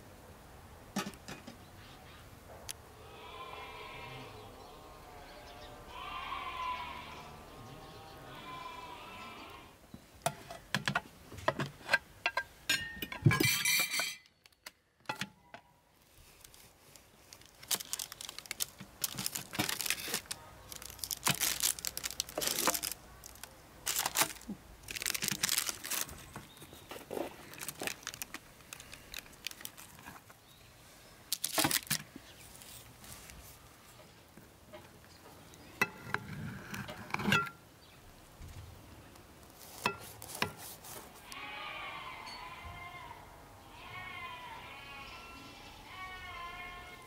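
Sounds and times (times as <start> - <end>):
parchment paper crinkling: 16.0 - 30.4, 31.3 - 33.6, 39.4 - 41.2.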